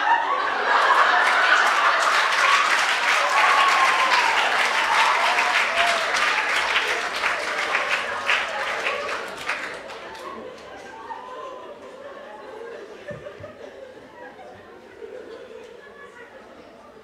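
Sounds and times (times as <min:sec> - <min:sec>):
voices in crowd: 0:00.0 - 0:17.0
audience applauding: 0:00.6 - 0:11.1.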